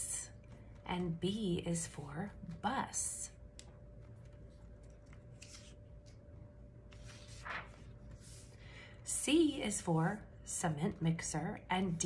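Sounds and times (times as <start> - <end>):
book page turning: 3.6 - 8.6.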